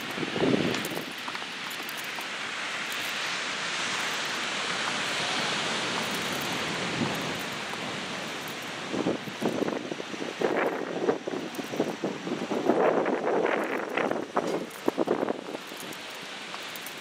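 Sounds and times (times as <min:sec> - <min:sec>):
wind buffeting microphone: 0:00.0 - 0:01.9, 0:05.2 - 0:16.1
ocean surf washing: 0:00.0 - 0:17.0.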